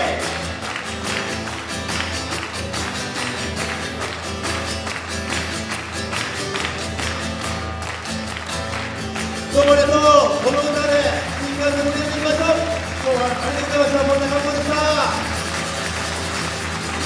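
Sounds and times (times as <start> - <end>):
acoustic guitar strumming: 0.0 - 17.0.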